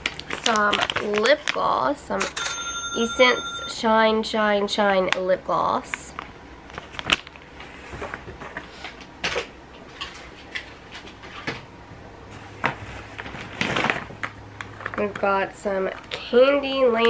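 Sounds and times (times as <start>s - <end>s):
plastic rustling: 0.0s - 2.2s, 12.3s - 17.0s.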